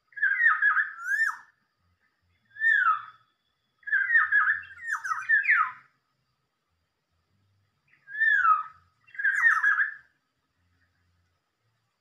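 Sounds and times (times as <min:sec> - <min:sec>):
oriole whistled calls: 0:00.0 - 0:01.6, 0:02.4 - 0:05.9, 0:07.9 - 0:10.2.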